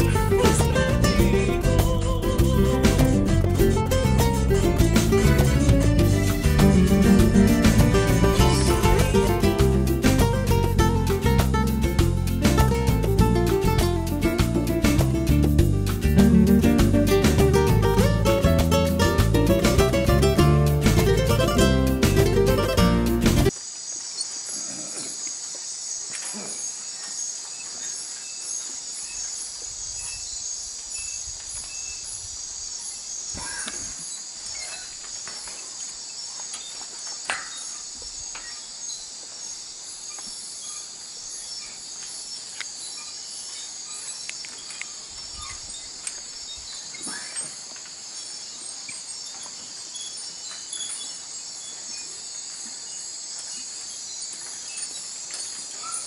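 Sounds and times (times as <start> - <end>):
insects trilling: 0.0 - 12.0, 23.5 - 56.0.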